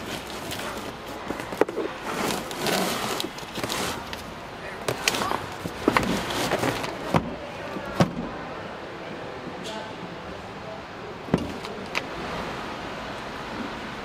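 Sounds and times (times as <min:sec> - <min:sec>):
cardboard boxes scraping: 0:00.0 - 0:08.0.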